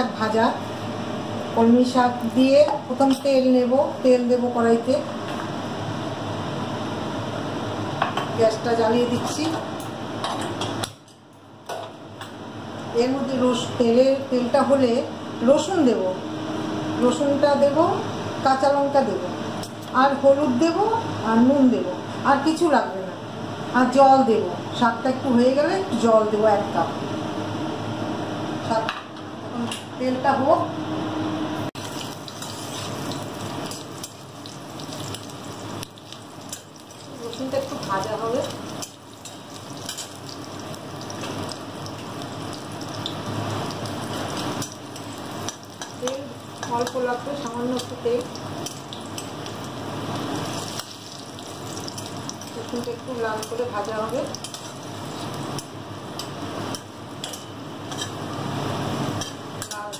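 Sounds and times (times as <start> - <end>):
garlic sizzling in hot oil: 31.8 - 59.9.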